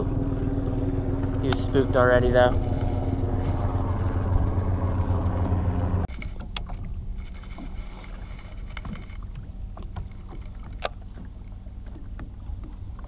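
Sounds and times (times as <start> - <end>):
electric motor humming: 0.0 - 6.1
water rumbling: 0.0 - 13.0
wind: 0.0 - 13.0.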